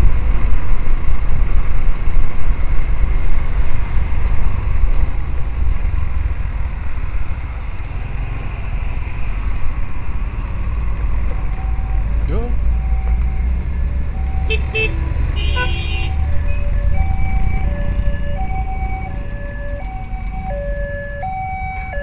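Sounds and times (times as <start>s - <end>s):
vehicle road and wind noise: 0.0s - 22.0s.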